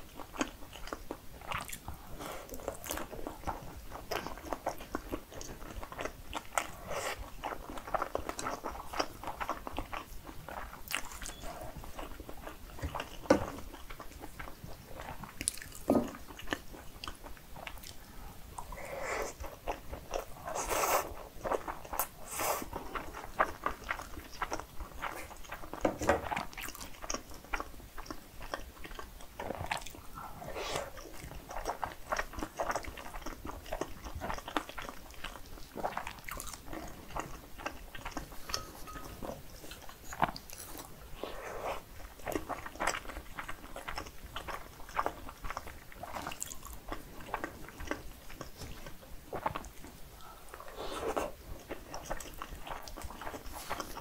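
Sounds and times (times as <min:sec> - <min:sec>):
person chewing food: 0:00.0 - 0:54.0.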